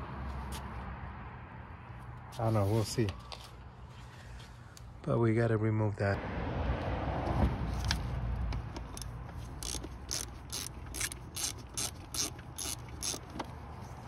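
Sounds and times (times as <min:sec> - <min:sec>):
ratchet wrench clicking: 0:08.8 - 0:13.5.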